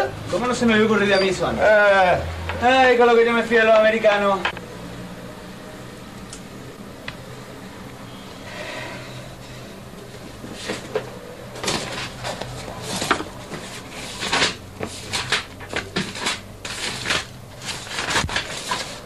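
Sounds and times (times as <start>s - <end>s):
pages being turned: 10.3s - 19.0s.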